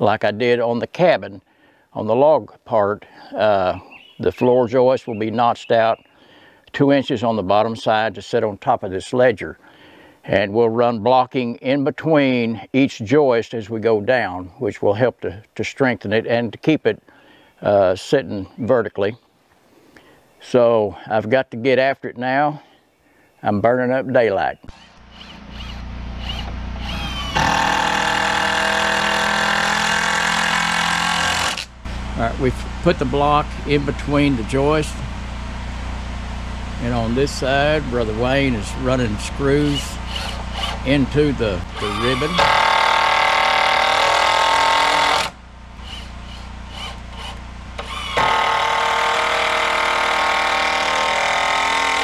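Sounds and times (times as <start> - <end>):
motor-driven machine droning: 24.7 - 52.0.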